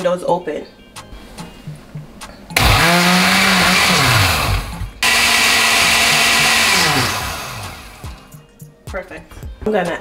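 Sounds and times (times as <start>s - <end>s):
blender blending liquid: 2.6s - 8.3s.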